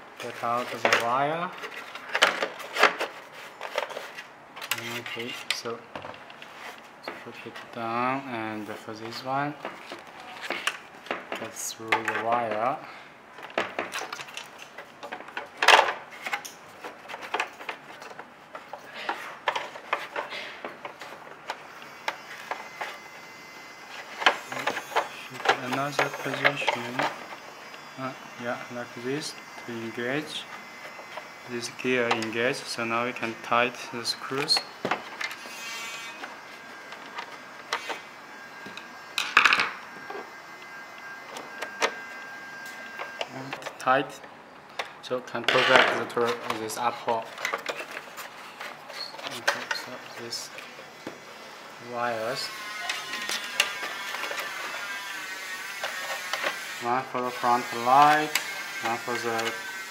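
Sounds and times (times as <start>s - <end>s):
plastic parts scraping: 0.2s - 7.8s, 13.4s - 23.0s, 24.0s - 27.3s, 43.2s - 50.8s, 52.2s - 59.7s
plastic parts clicking and knocking: 47.3s - 49.9s.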